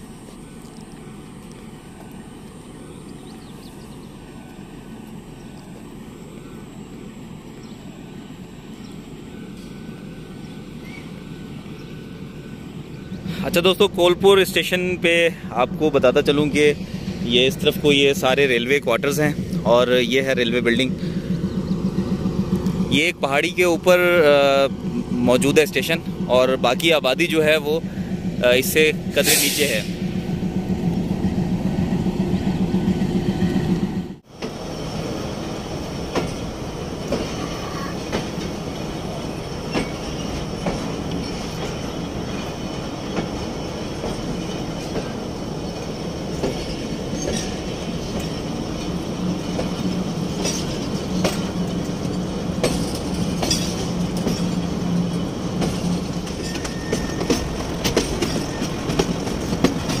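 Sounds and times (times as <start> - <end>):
train wheels rumbling on rails: 0.0 - 60.0
wheel squeals: 37.2 - 60.0.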